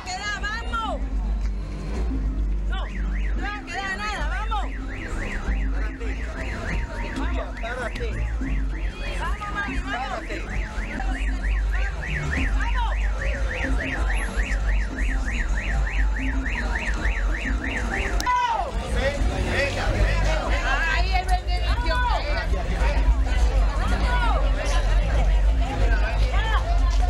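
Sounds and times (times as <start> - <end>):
electronic siren warbling: 4.6 - 18.3.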